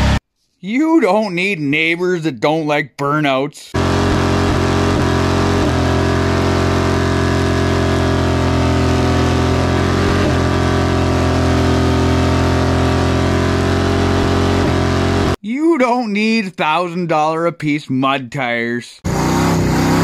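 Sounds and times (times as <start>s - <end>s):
vehicle engine held steady: 3.7s - 15.4s.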